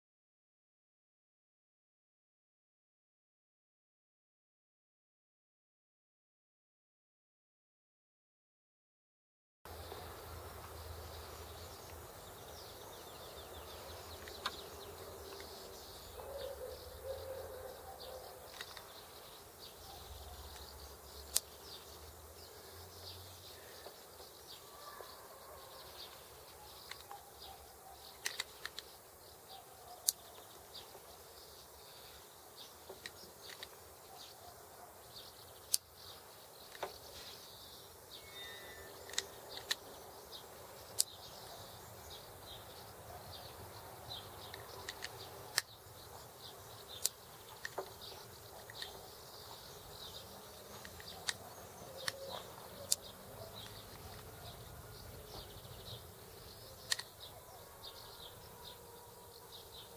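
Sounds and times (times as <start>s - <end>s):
birds chirping: 9.7s - 59.9s
insects: 9.7s - 59.9s
bicycle shifter clicks: 18.5s - 19.0s, 28.2s - 28.9s, 39.0s - 39.8s, 44.5s - 45.8s, 52.0s - 54.3s, 56.8s - 57.2s.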